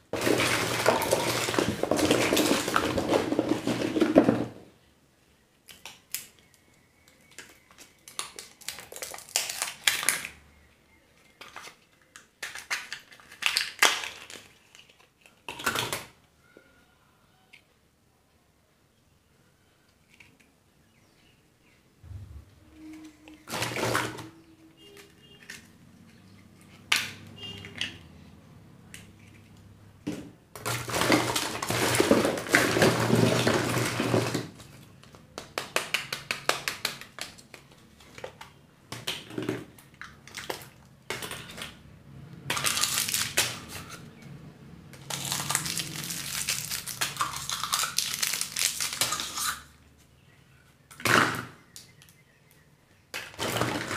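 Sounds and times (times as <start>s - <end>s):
wrappers crinkling and rustling: 42.6s - 44.0s, 45.0s - 49.7s.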